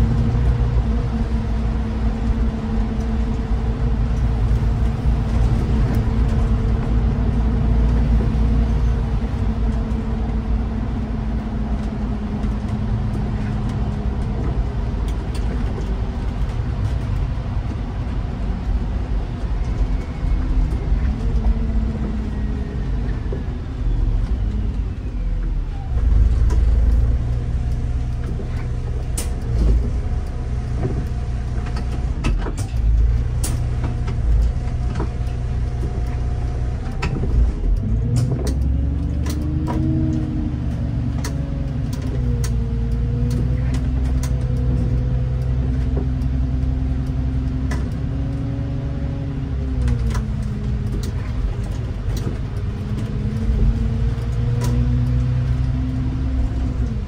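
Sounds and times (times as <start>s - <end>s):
bus engine and road rumble: 0.0s - 57.0s
sharp clicks and rattles: 26.0s - 57.0s.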